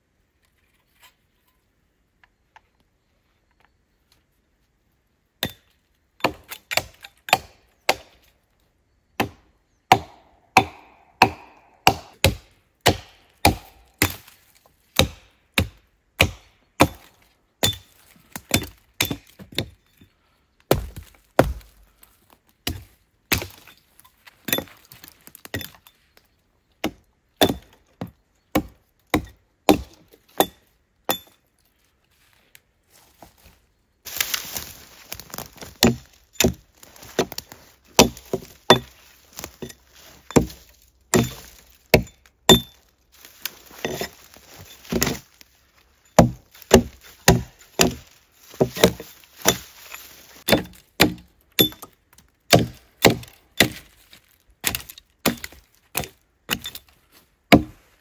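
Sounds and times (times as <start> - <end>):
hatchet chopping wood: 5.4 - 8.3, 9.2 - 14.4, 15.0 - 19.8, 20.7 - 21.8, 22.6 - 23.8, 24.4 - 25.8, 26.8 - 31.4, 34.1 - 45.4, 46.0 - 54.0, 54.6 - 56.9, 57.5 - 57.8.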